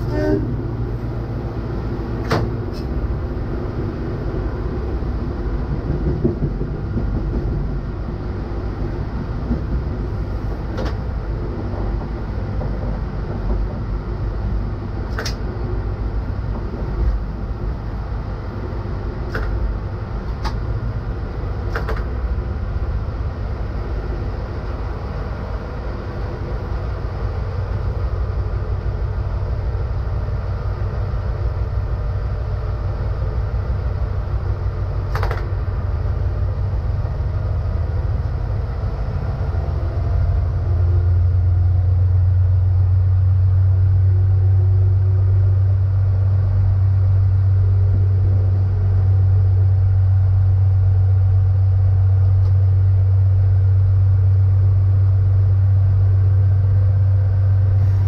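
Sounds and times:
diesel railcar engine drone: 0:00.0 - 0:58.0
track rumble: 0:00.0 - 0:58.0
sharp click: 0:15.1 - 0:15.4, 0:19.3 - 0:19.5.

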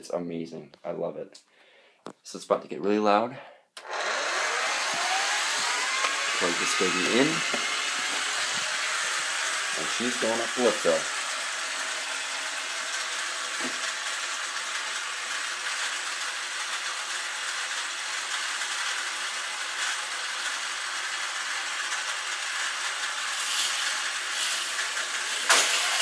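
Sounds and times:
toy coaster clicking down track: 0:12.9 - 0:26.0.

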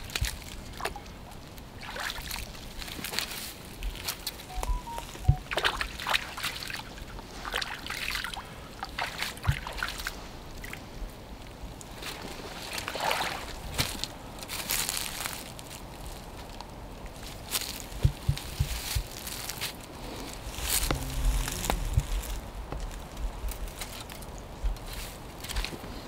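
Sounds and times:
water sloshing around boots: 0:01.7 - 0:03.4, 0:05.3 - 0:10.8, 0:12.0 - 0:14.0
boots thudding on bank: 0:09.3 - 0:10.0, 0:17.6 - 0:19.8.

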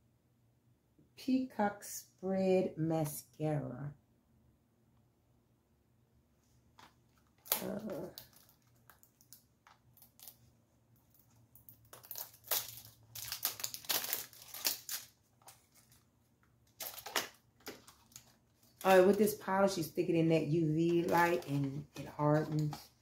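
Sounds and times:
packaging crinkling and tearing: 0:06.8 - 0:19.8, 0:20.9 - 0:23.0.

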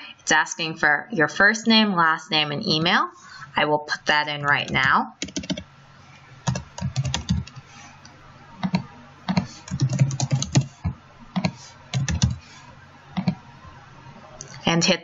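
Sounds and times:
computer keyboard typing: 0:04.5 - 0:05.6, 0:06.4 - 0:07.6, 0:08.6 - 0:12.4, 0:13.2 - 0:13.4.

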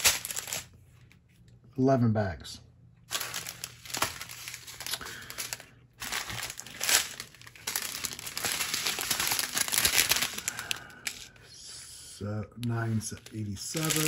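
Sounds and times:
plastic bags crinkling: 0:00.0 - 0:00.8, 0:03.1 - 0:11.4, 0:12.7 - 0:14.0.

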